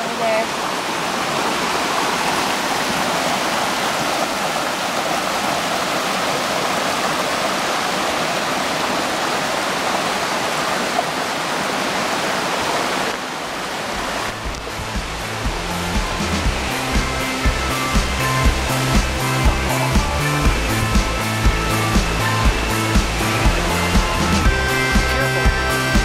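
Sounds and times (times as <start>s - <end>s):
creek water rushing: 0.0s - 26.0s
bass notes of music: 14.0s - 26.0s.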